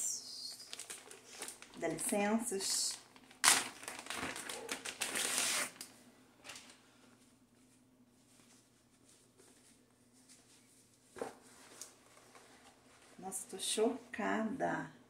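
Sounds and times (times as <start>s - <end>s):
faint steady hum: 0.0s - 15.0s
packaging crinkling: 0.4s - 6.8s.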